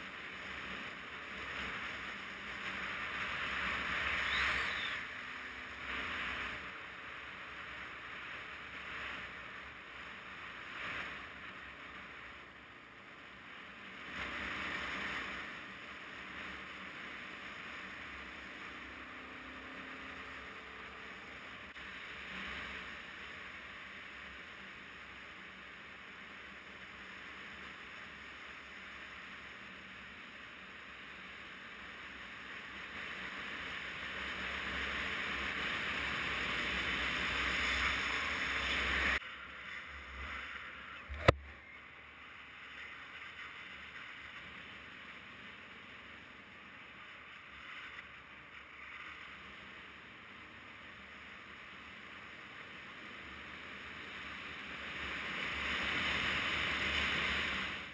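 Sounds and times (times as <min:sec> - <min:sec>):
wind and road rush: 0:00.0 - 0:57.9.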